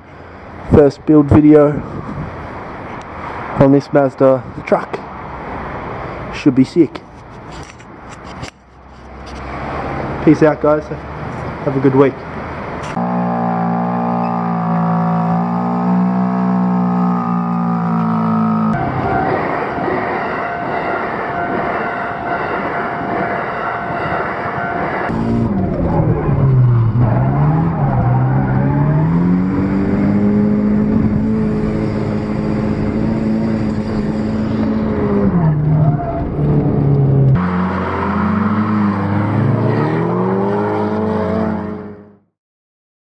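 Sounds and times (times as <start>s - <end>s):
passing train whine: 12.4s - 27.9s
car engine revving: 12.8s - 19.4s, 25.1s - 42.2s.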